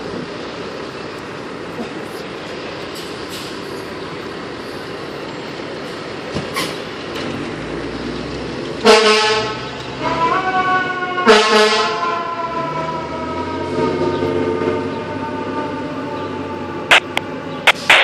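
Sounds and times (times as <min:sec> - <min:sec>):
street noise: 0:00.0 - 0:18.0
fire engine air horn blasting: 0:08.8 - 0:17.2
siren sliding down in pitch: 0:10.0 - 0:17.2.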